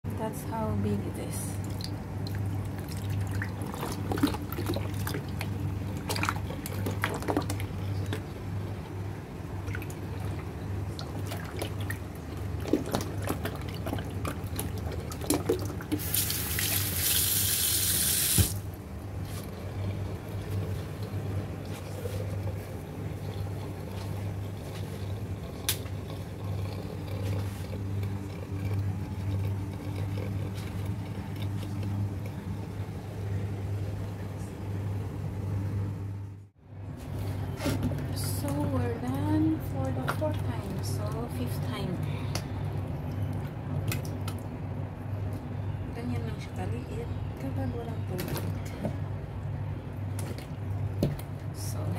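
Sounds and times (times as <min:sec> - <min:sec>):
steady low hum: 0:00.0 - 0:17.5, 0:18.2 - 0:51.9
tap water running: 0:12.8 - 0:18.7.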